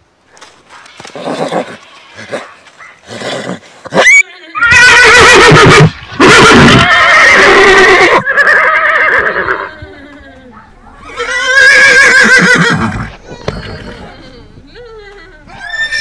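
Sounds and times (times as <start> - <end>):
horse whinnying: 1.0 - 10.3, 11.0 - 14.1, 15.5 - 16.0.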